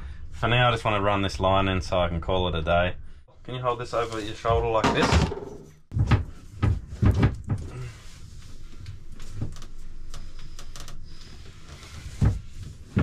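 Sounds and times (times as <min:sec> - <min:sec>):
hose bumping wooden cabinetry: 0:04.5 - 0:07.8
loud thump: 0:04.8 - 0:05.8
knocks and clunks from work: 0:04.8 - 0:07.8.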